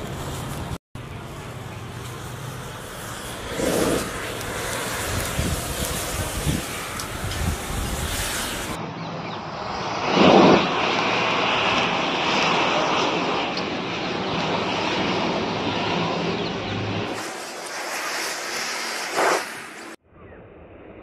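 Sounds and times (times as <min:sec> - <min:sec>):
match heads burning whoosh: 0:02.0 - 0:08.8, 0:17.1 - 0:20.0.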